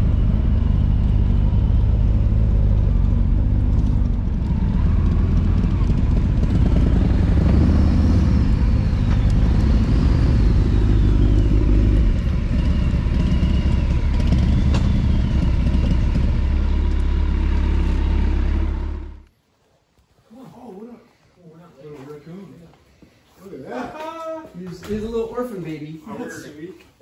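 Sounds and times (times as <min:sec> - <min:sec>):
low wind rumble: 0:00.0 - 0:19.3
motorcycle engines at low speed: 0:00.0 - 0:19.3.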